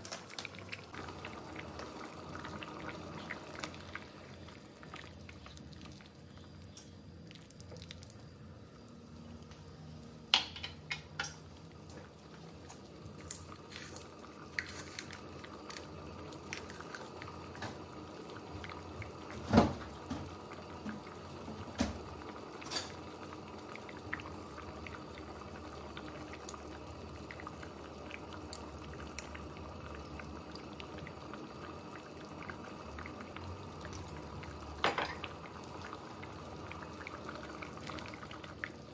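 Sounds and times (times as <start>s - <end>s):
porridge simmering in a pot: 0.0s - 38.9s
bubbles popping: 0.4s - 8.2s.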